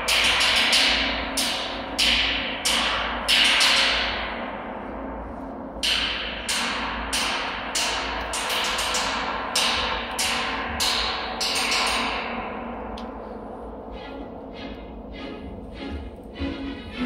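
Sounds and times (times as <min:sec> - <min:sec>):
orchestral music: 0:13.8 - 0:17.0.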